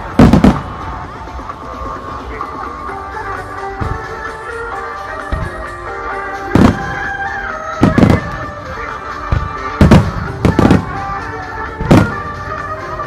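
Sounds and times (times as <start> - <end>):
fireworks booming: 0.0 - 1.4, 5.1 - 12.8
music: 0.0 - 13.0.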